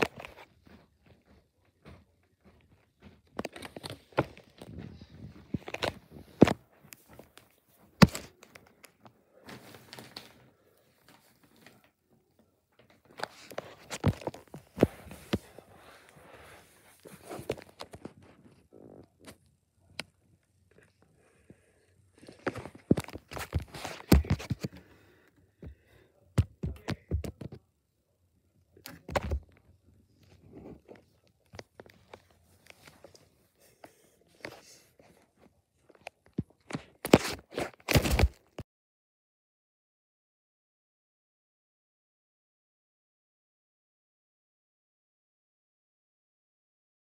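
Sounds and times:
footsteps: 0:00.0 - 0:18.7, 0:22.2 - 0:27.5
camera handling rustling: 0:05.5 - 0:08.7, 0:22.3 - 0:24.8, 0:37.0 - 0:38.6.

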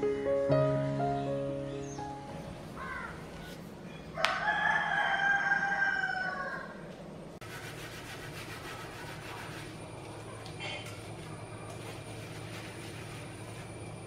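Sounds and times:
rooster crowing: 0:04.1 - 0:06.9.

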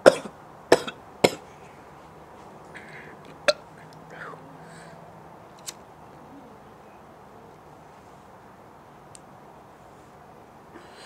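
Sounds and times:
breathy exhales: 0:02.7 - 0:03.2, 0:04.0 - 0:05.1, 0:10.8 - 0:11.0.

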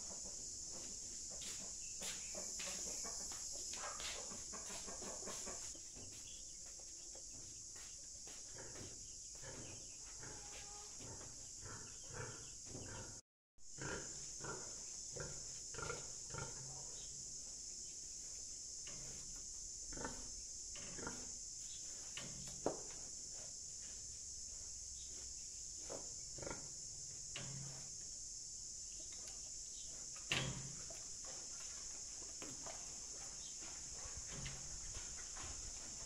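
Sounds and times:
insect drone: 0:00.0 - 0:36.0
pig grunting: 0:08.6 - 0:13.2, 0:13.8 - 0:16.8.

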